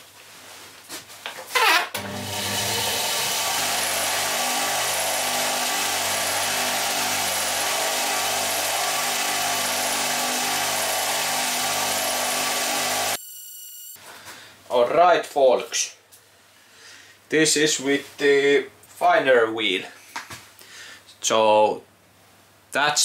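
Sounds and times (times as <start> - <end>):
bench grinder motor running: 2.0 - 13.2.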